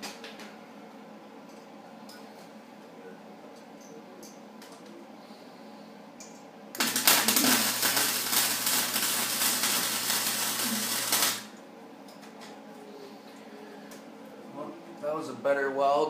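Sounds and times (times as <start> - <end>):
welder arc crackling: 6.7 - 11.6.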